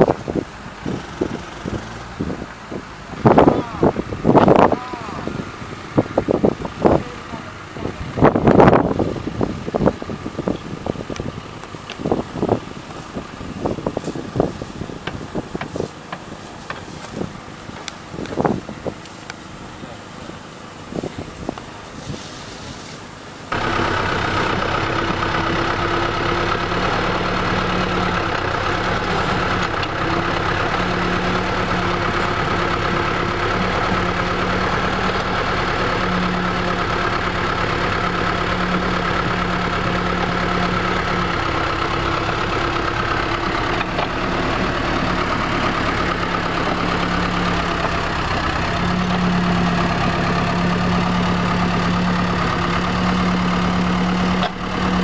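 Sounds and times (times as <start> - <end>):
diesel engine running: 0.0 - 55.0
high whine: 23.5 - 36.0.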